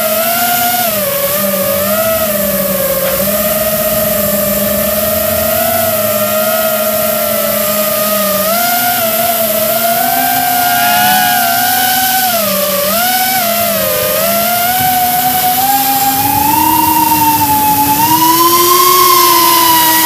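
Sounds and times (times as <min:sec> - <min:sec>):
electric motor and propeller whine: 0:00.0 - 0:20.0.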